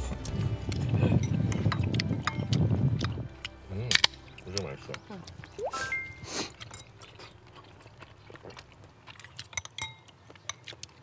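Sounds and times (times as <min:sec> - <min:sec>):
chewing: 0:00.0 - 0:11.0
sipping: 0:00.7 - 0:11.0
cutlery and dishes clicking: 0:09.5 - 0:10.7.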